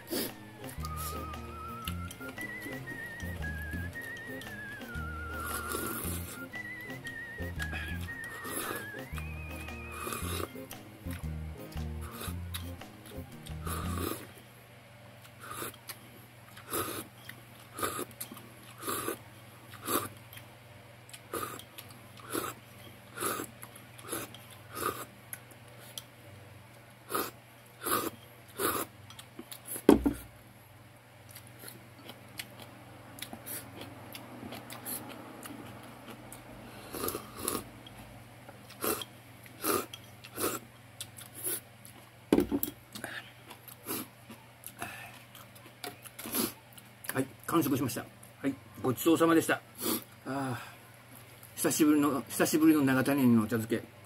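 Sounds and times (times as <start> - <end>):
slurping: 0.1 - 11.2, 12.0 - 14.3
knock: 29.9 - 30.2, 42.4 - 42.6
chewing: 31.3 - 42.1, 42.9 - 47.2.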